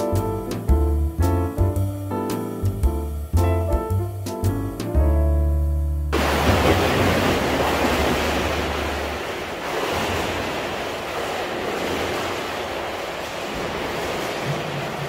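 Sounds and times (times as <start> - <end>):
swimmer splashing water: 6.2 - 15.0.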